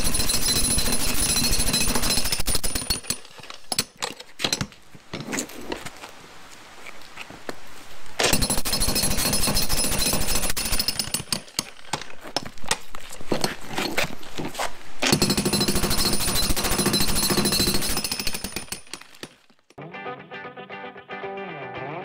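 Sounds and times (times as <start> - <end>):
jackhammer breaking concrete: 0.0 - 3.3, 8.3 - 11.8, 15.0 - 19.3.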